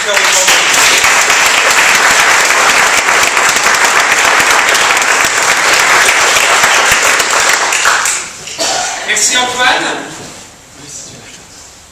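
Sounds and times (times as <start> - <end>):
audience applauding: 0.0 - 8.4.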